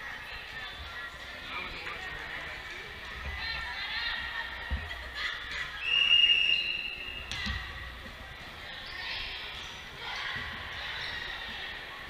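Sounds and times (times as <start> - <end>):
referee's whistle blast: 5.8 - 7.3.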